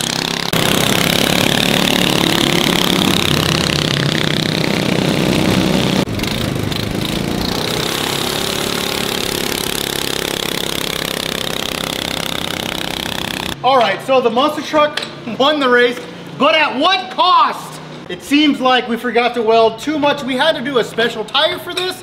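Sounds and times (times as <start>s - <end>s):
small engines accelerating: 0.0s - 13.6s.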